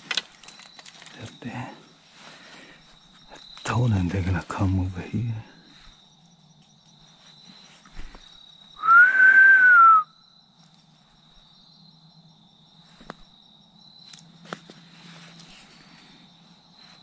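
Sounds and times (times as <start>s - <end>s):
faint insect trill: 0.0s - 17.0s
loud whistled note: 8.8s - 10.2s.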